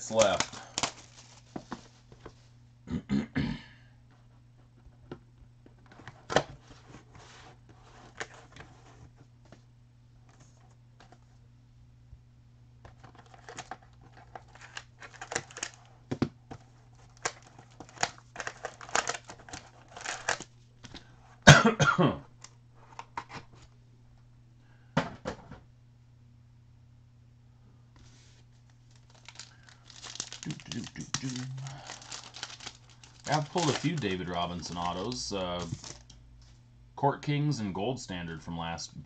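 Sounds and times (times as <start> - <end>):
foil packs crinkling and tearing: 0.0 - 1.9, 13.0 - 15.9, 16.6 - 21.1, 28.8 - 36.1
low steady hum: 0.0 - 39.0.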